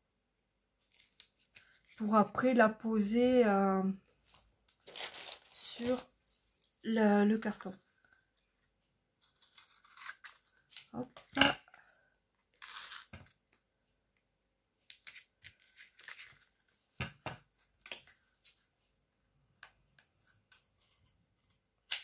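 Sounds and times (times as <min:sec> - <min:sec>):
paper and card rustling: 0:04.0 - 0:08.2, 0:14.9 - 0:16.9
tape pulled from roll: 0:12.6 - 0:13.2.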